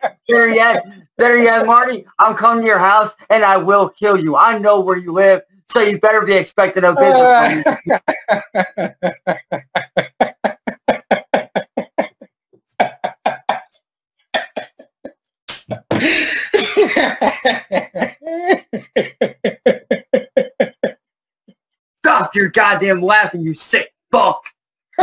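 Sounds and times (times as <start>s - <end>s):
old man laughing hard: 0.0s - 0.9s, 7.0s - 13.6s, 15.8s - 21.0s
raspy breathy burst: 16.0s - 16.6s.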